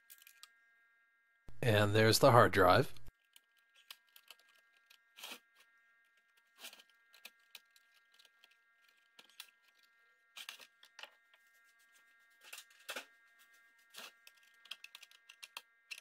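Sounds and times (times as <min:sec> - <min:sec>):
clicks and scrapes of computer case: 0:03.3 - 0:16.0.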